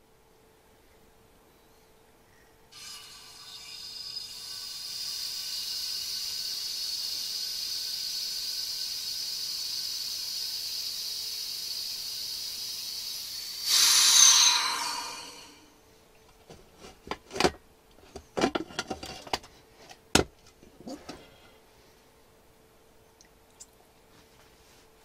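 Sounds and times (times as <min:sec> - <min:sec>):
air hissing through valve: 0:02.8 - 0:15.7.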